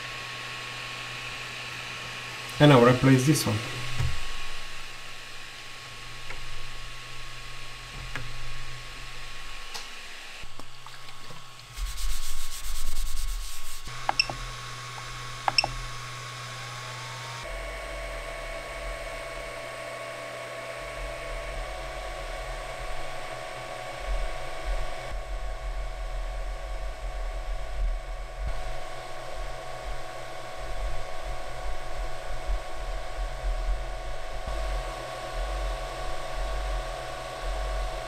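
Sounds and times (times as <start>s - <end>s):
fan hum: 0.0s - 38.0s
stepper motor whine: 13.9s - 38.0s
knob clicks: 15.5s - 15.8s.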